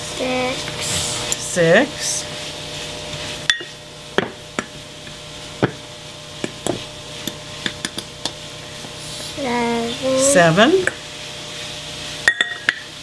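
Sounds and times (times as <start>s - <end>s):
metal cup and knife clinking on glass: 12.3s - 12.8s.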